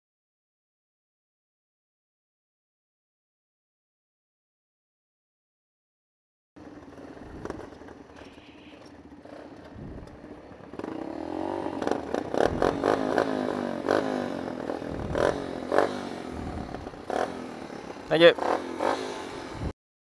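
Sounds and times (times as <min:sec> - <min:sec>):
minibike engine idling and revving: 0:06.6 - 0:19.8.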